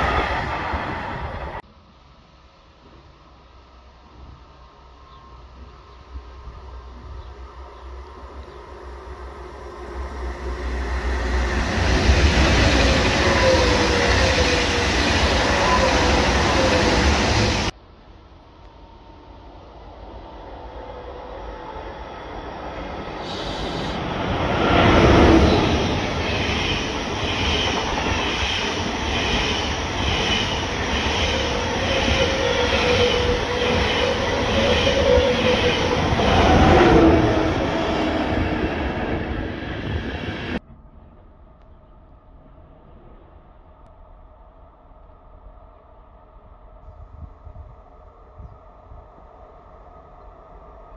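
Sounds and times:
train passing at speed: 0:00.0 - 0:01.6, 0:03.9 - 0:40.6.

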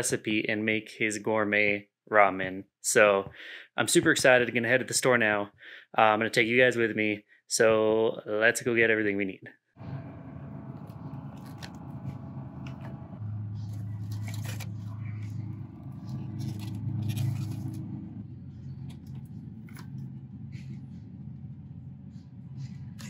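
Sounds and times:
low background hum: 0:09.8 - 0:23.0
rustles and clicks: 0:10.7 - 0:21.2
plastic packages crinkling: 0:13.6 - 0:17.8.

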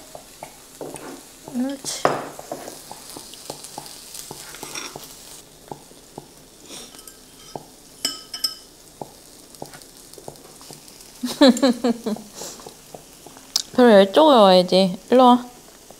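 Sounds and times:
meat sizzling in a pan: 0:00.0 - 0:15.9
tableware clinks: 0:07.0 - 0:08.7.

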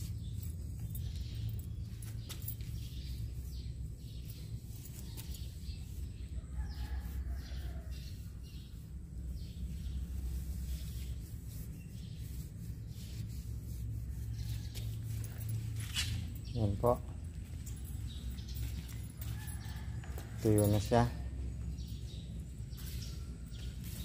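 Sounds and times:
steady low hum: 0:00.0 - 0:24.0
scratchy scraping strokes: 0:04.2 - 0:16.4, 0:22.8 - 0:24.0
rooster crowing faintly: 0:06.4 - 0:08.4.

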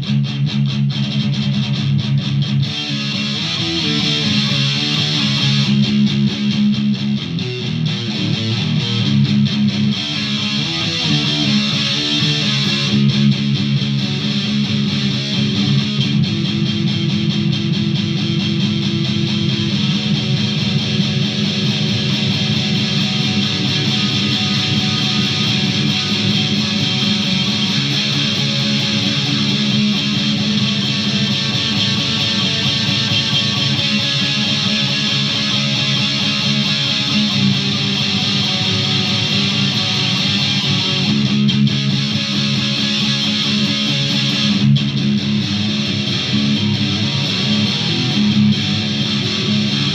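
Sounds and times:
electric guitar with effects: 0:00.0 - 0:49.9.

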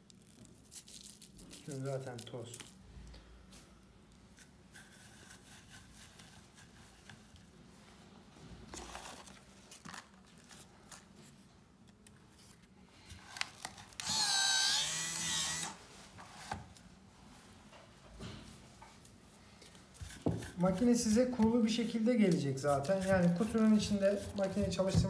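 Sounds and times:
cigarette-filling machine motor whine: 0:14.0 - 0:15.8.

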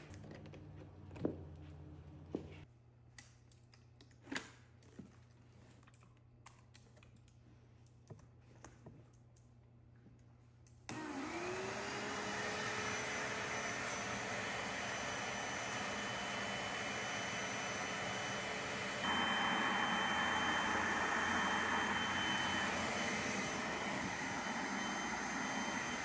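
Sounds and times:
carpet cleaner suction motor whine: 0:10.9 - 0:26.0.

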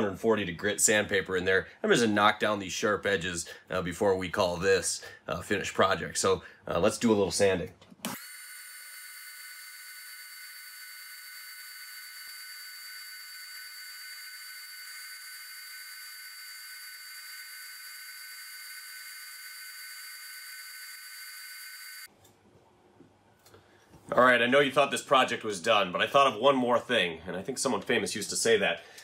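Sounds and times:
spindle sander whining: 0:08.1 - 0:22.1.

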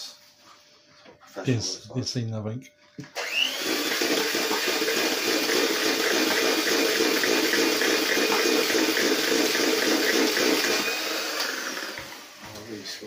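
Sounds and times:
electric hand mixer running: 0:03.1 - 0:13.0.

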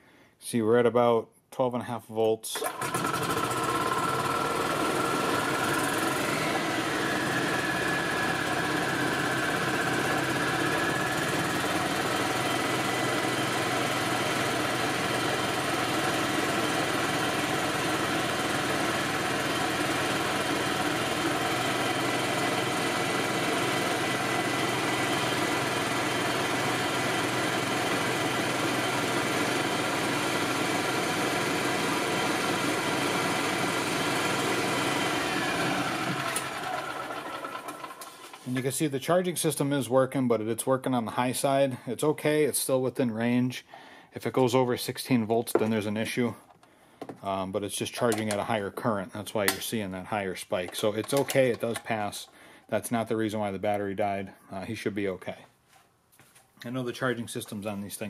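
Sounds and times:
golf cart engine running: 0:02.6 - 0:38.4.

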